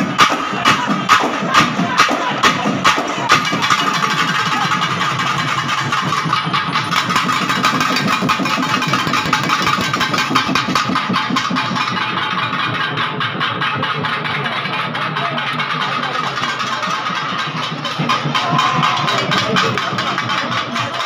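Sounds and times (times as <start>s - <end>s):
crowd noise: 0.0s - 21.0s
fast barrel drum beating: 0.0s - 21.0s
steady high tone: 15.8s - 20.6s.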